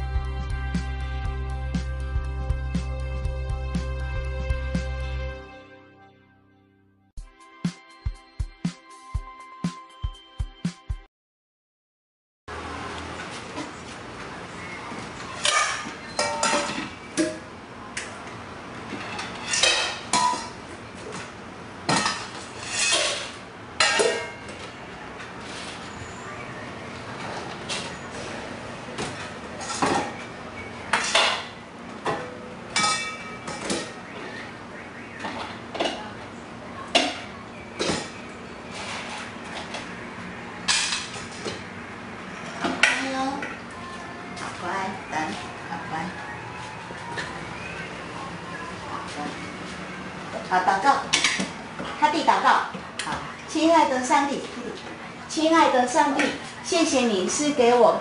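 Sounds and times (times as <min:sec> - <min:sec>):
bowls and utensils clattering: 0:15.4 - 0:17.5, 0:18.8 - 0:21.3, 0:21.9 - 0:24.8, 0:29.0 - 0:30.3, 0:30.9 - 0:34.0, 0:40.7 - 0:41.6, 0:51.1 - 0:52.0.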